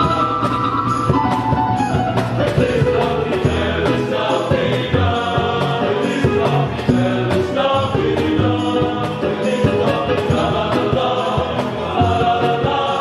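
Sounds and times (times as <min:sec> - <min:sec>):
guitar: 0:00.0 - 0:13.0
choir singing a hymn: 0:02.4 - 0:13.0.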